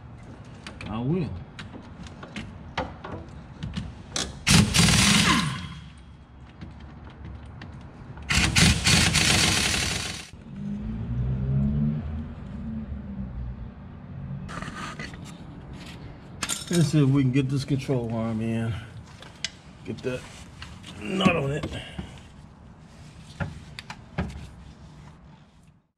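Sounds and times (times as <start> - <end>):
air impact wrench hammering: 4.2 - 6.0, 8.3 - 10.3.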